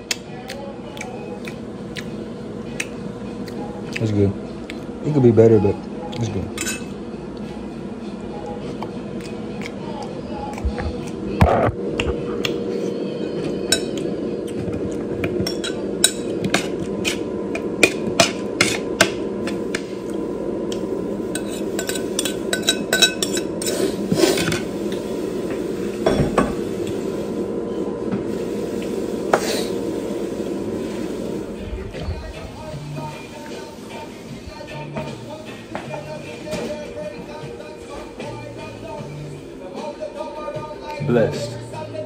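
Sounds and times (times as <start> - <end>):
steady hum: 0.0 - 42.0
utensils clinking against dishes: 6.1 - 7.0, 12.8 - 14.6, 15.2 - 17.2, 17.8 - 19.6, 21.3 - 24.7.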